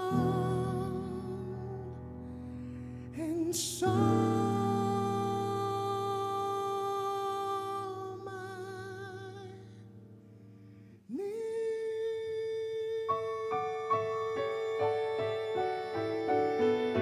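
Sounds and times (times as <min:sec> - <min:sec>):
man singing with vibrato: 0:00.0 - 0:02.0, 0:03.1 - 0:09.8, 0:11.1 - 0:17.0
piano notes: 0:00.0 - 0:10.8, 0:12.8 - 0:17.0
man humming: 0:11.1 - 0:17.0.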